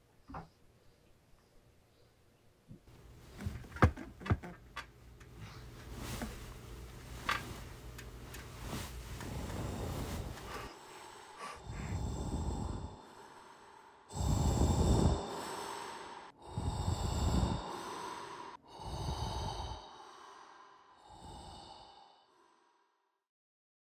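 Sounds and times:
person breathing hard: 8.4 - 23.0.

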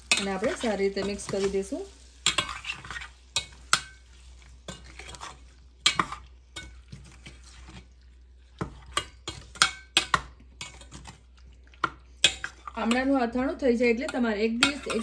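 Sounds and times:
spoon scraping and clinking pot: 0.0 - 13.2, 13.9 - 15.0.

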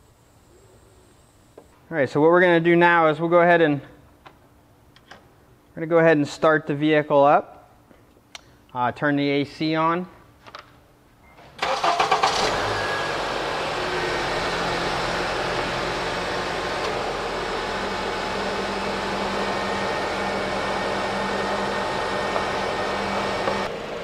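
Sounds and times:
car engine running: 12.3 - 24.0
low hum: 12.7 - 24.0.

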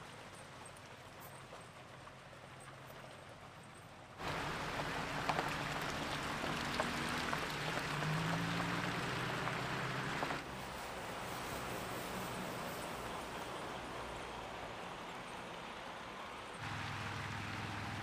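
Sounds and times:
idling vehicle engines: 0.0 - 18.0
wet snow hissing and ticking: 4.2 - 16.4.

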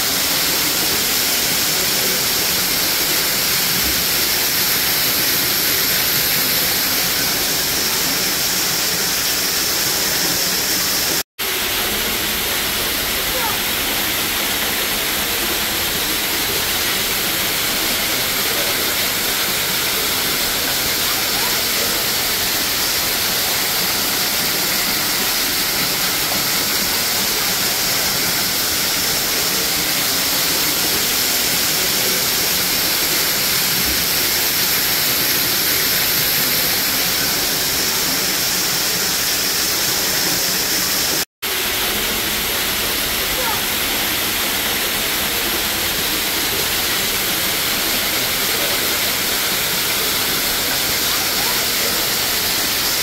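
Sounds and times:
waterfall rushing and splashing: 0.0 - 53.0.

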